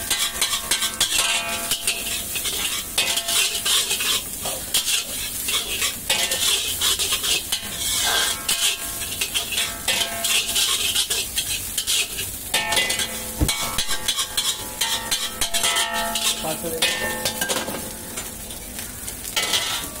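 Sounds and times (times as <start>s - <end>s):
metal spatula scraping wok: 0.0s - 18.4s, 19.2s - 20.0s
food sizzling: 0.0s - 20.0s
heavy knock on wok: 13.4s - 14.0s.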